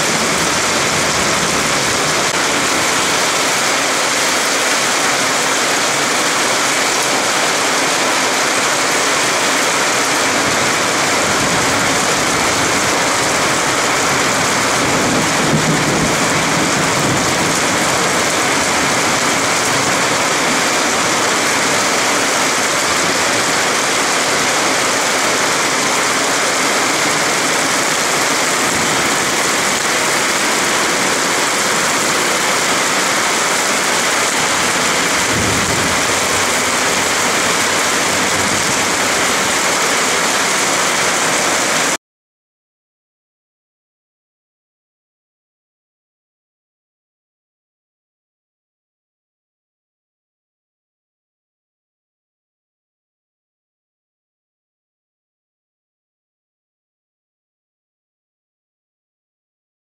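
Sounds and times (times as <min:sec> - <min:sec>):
heavy rain pouring: 0:00.0 - 0:42.0.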